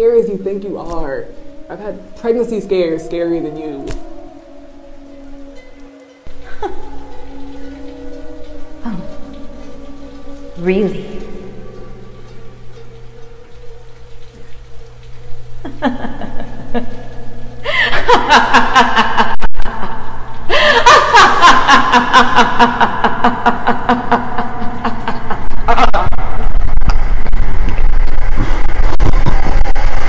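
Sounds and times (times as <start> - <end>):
person laughing theatrically: 6.4 - 6.9, 15.6 - 17.0, 17.6 - 26.6
deep rumble: 22.6 - 30.0.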